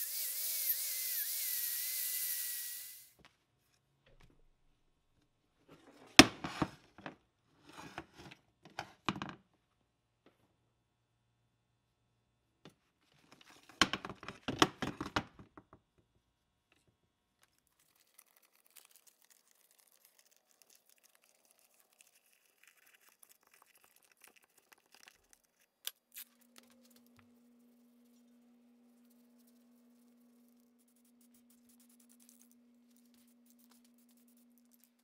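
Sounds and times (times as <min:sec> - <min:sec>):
tape crinkling: 0:17.4 - 0:28.2.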